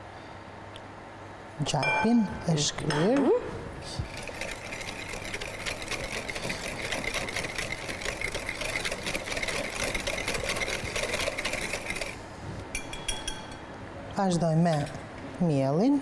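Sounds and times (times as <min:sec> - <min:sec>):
electric mixer running: 0:04.1 - 0:12.2.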